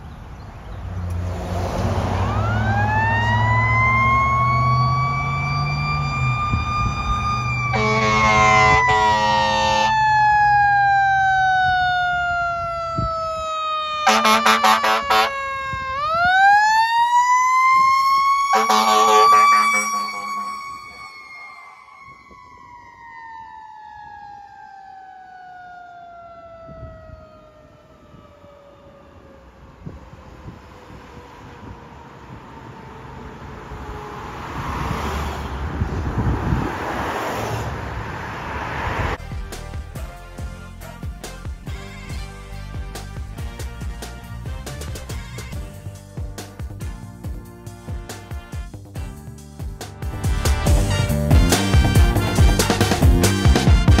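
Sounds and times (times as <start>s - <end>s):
diesel engine rumbling: 0.0s - 24.7s
mechanical siren wailing: 2.0s - 34.5s
air horn blasts: 7.7s - 10.2s, 14.0s - 16.1s, 18.5s - 21.8s, 39.2s - 46.0s, 50.1s - 54.0s.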